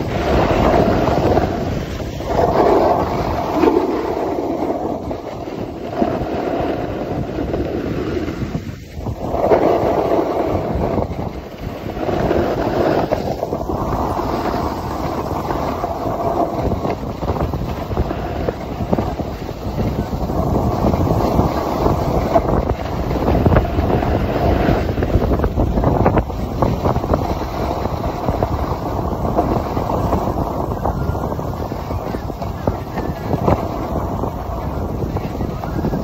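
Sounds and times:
skis sliding over packed snow: 0.0 - 36.0
wind rushing over microphone: 0.0 - 36.0.

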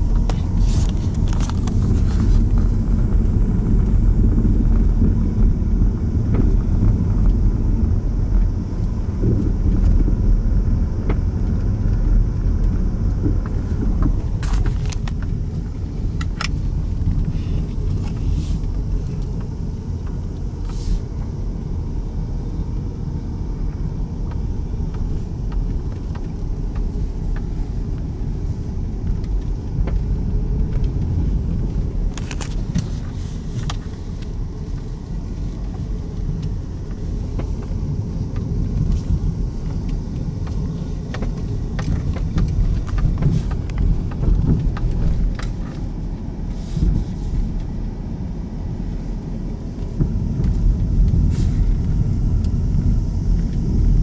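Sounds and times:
car rolling slowly: 0.0 - 54.0.

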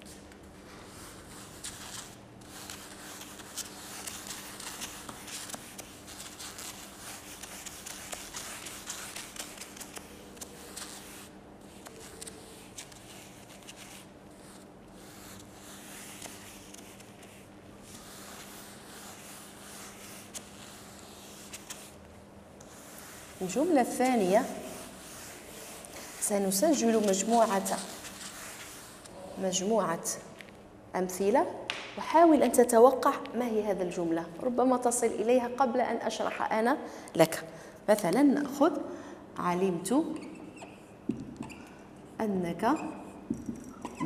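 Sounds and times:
eraser rubbing on whiteboard: 0.8 - 29.7, 42.6 - 44.0.

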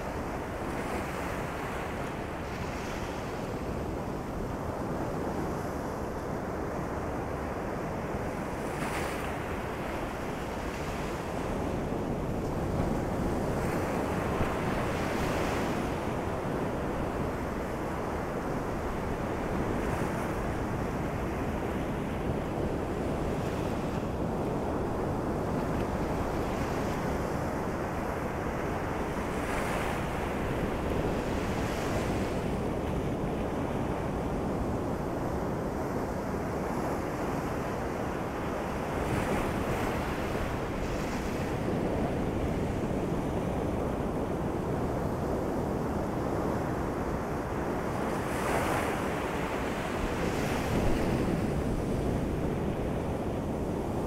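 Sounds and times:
ocean waves breaking on beach: 0.0 - 54.0.

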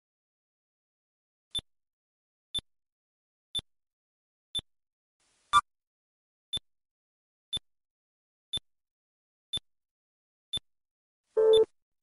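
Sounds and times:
louder beep with lower tone: 11.4 - 11.7
short electronic beeps: 11.4 - 11.7.

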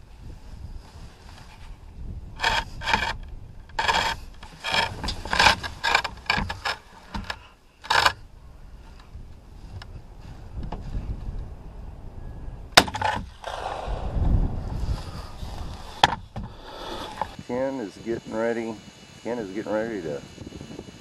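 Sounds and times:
gun scraping against frame: 2.4 - 8.2, 12.9 - 14.0, 14.6 - 17.4.

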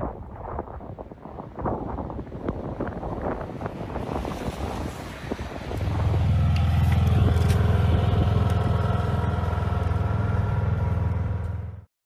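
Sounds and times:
engine humming steadily: 5.6 - 11.9.

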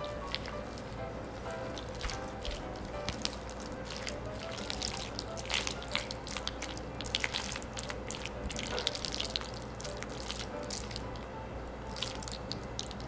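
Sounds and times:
spatula stirring sticky food in bowl: 0.0 - 11.1.

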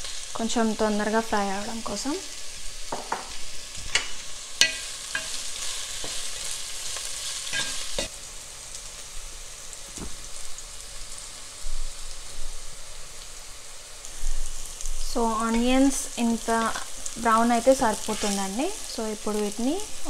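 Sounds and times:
onions sizzling in hot oil: 0.0 - 20.0
wooden spatula knocking pan: 2.9 - 5.4.

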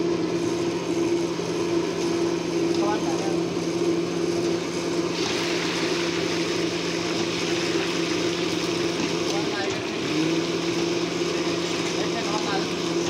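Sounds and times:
deep-frying sizzle: 0.0 - 13.0
low mechanical hum: 0.0 - 13.0.

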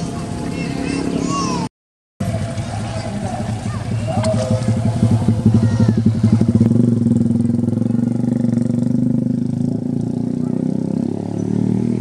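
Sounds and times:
small engine running: 2.2 - 8.7.

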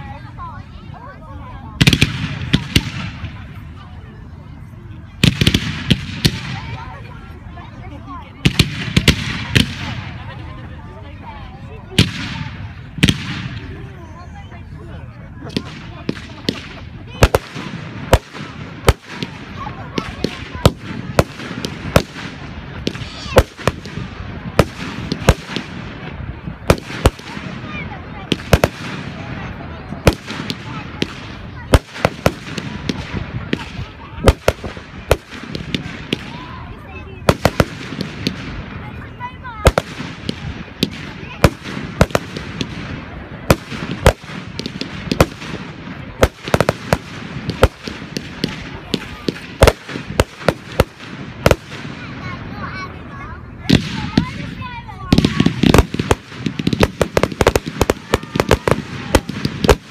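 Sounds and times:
firework crackle: 1.8 - 3.8, 5.0 - 14.7, 15.4 - 59.9
firework shells bursting: 55.1 - 59.9.

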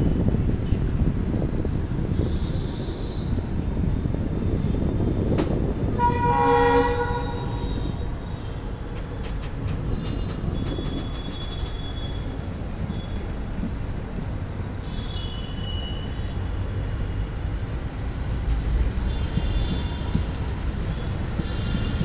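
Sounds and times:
train rumbling: 0.0 - 22.0
rail clicks: 0.3 - 6.0, 6.8 - 17.9
train horn: 5.9 - 8.1.

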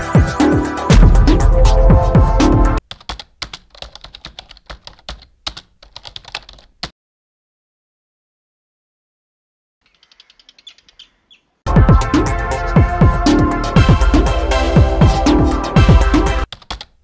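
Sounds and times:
loud intro music: 0.0 - 2.8, 11.7 - 16.5
keyboard typing clicks: 2.8 - 6.9, 16.5 - 17.0.

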